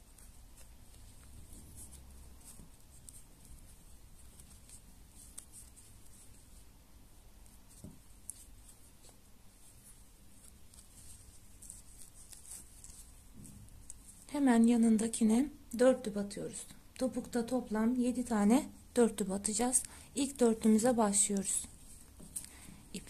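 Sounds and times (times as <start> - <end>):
crochet hook scratching yarn: 0.0 - 14.8.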